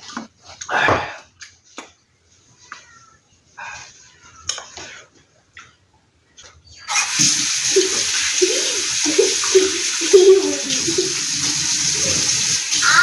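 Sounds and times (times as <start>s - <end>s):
hands rinsing under water: 6.9s - 13.0s
kitchen faucet turned on: 6.9s - 13.0s
water running into steel sink: 6.9s - 13.0s.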